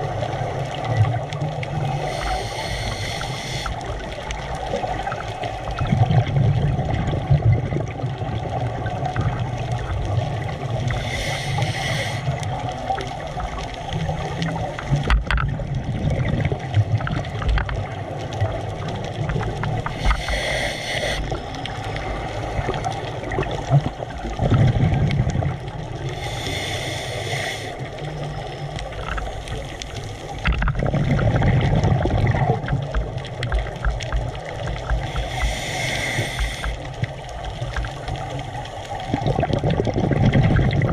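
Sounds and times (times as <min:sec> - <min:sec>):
gurgles of exhaled bubbles: 0:00.0 - 0:26.4, 0:27.9 - 0:40.9
regulator inhalation hiss: 0:01.9 - 0:04.1, 0:10.9 - 0:12.4, 0:19.9 - 0:21.6, 0:26.0 - 0:28.0, 0:35.0 - 0:37.0.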